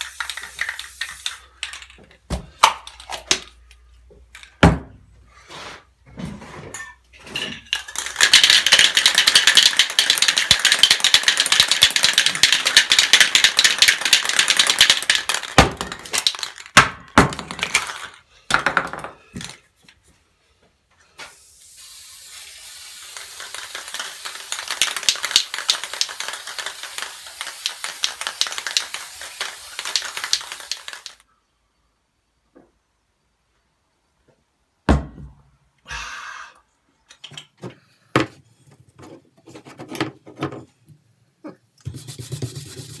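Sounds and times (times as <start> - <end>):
aerosol spray hissing: 0.0 - 1.5, 21.2 - 31.2
spray can rattling: 0.0 - 2.0, 7.7 - 18.2, 21.3 - 31.2.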